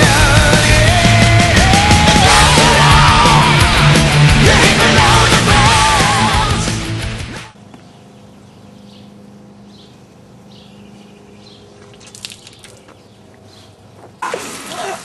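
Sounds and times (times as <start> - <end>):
steady low hum: 7.5 - 12.0.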